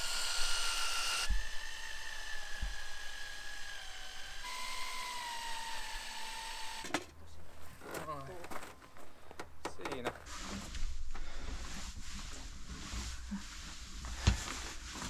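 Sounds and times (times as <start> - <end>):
power drill whining: 0.0 - 6.9.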